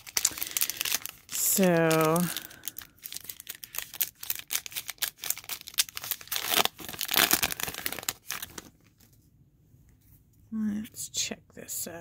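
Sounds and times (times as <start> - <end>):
wrapper crinkling and tearing: 0.0 - 9.1.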